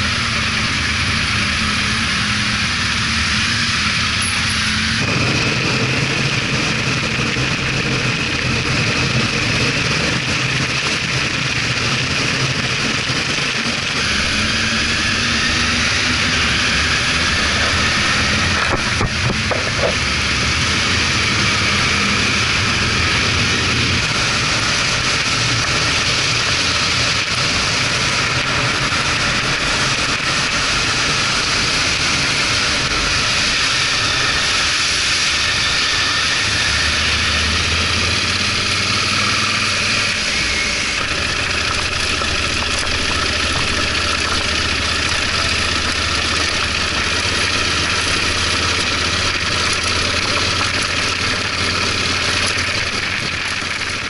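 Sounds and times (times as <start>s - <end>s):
motorcycle engine running: 0.0s - 54.0s
road noise: 0.0s - 54.0s
wind noise: 12.8s - 38.9s.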